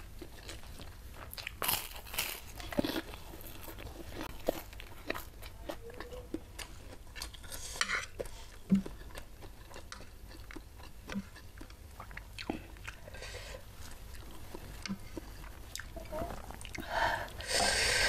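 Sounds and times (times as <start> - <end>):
person chewing with mouth clicks: 0.0 - 17.0
metal spoon scraping a plate: 7.7 - 8.2.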